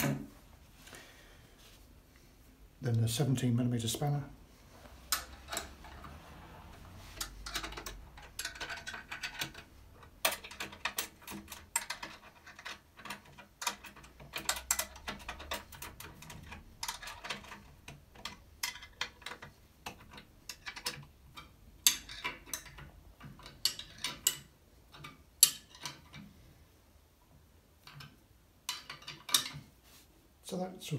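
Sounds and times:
spanner clicking on bolts: 7.2s - 26.2s.

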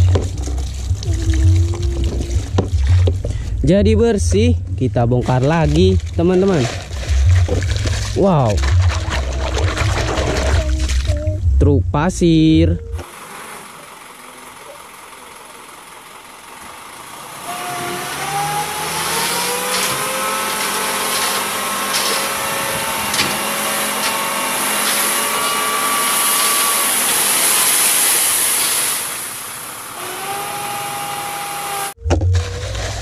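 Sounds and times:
truck engine revving: 0.0s - 33.0s
hydraulic hoist whining: 12.8s - 33.0s
sand sliding out: 18.8s - 29.9s.

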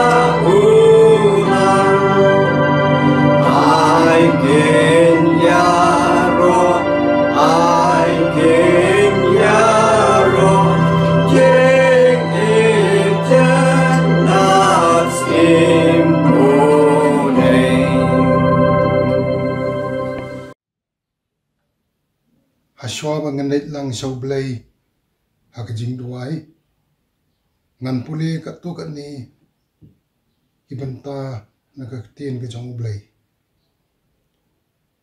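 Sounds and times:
organ chords: 0.0s - 20.6s
person singing a hymn: 0.0s - 20.6s.

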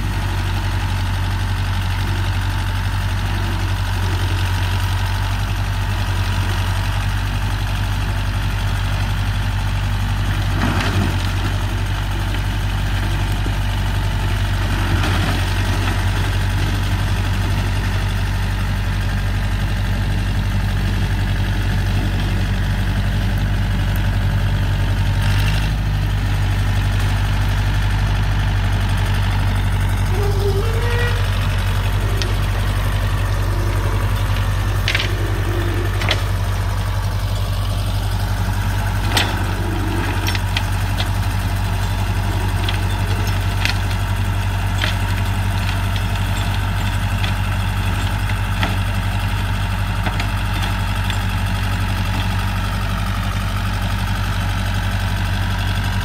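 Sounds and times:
tractor diesel engine droning: 0.0s - 56.0s.

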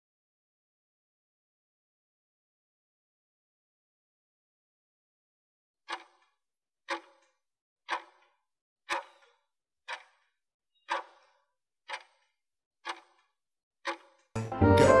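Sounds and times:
clock ticking: 5.9s - 7.3s, 7.9s - 8.3s, 8.9s - 14.9s.

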